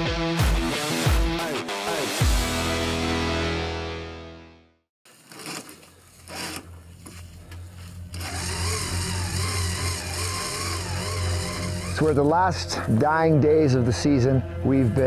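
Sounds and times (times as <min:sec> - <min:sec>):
electric winch whining: 0:05.3 - 0:06.7, 0:08.1 - 0:12.8
vehicle engine humming: 0:05.7 - 0:15.0.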